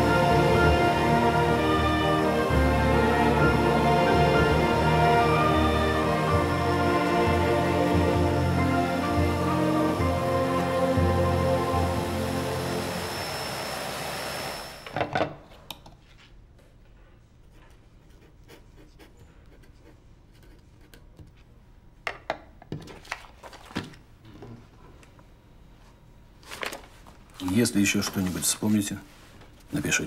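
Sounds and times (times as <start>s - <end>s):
orchestral film music: 0.0s - 14.8s.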